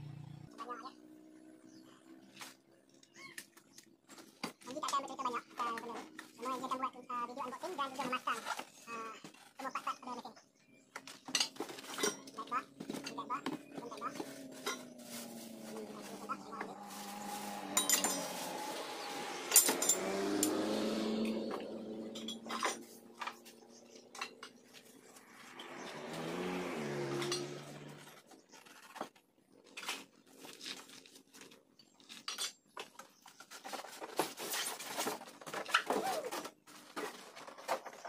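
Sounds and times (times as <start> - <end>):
metallic clinks and rattles: 17.7 - 18.4.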